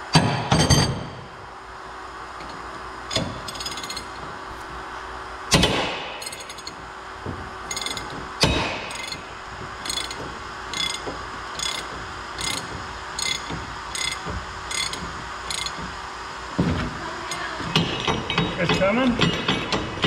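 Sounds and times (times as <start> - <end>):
ratchet clicking: 3.1 - 4.2, 6.2 - 6.8, 7.7 - 8.1, 8.9 - 9.2, 9.8 - 15.9
loud metal clanks: 7.7 - 15.9.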